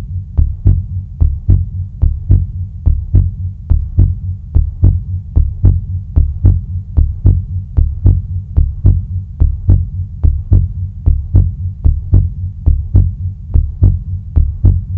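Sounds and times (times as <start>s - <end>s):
heartbeat thumping: 0.0s - 14.9s.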